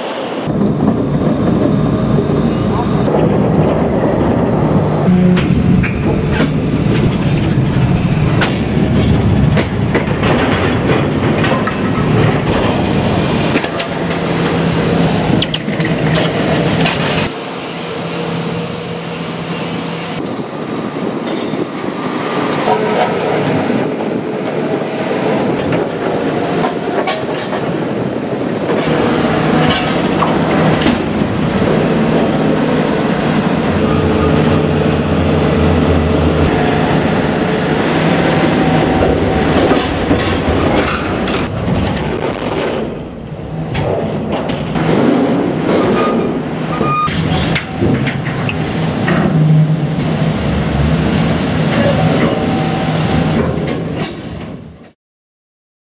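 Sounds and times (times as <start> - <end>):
excavator engine and hydraulics: 0.0 - 55.0
metal squealing: 28.4 - 41.5.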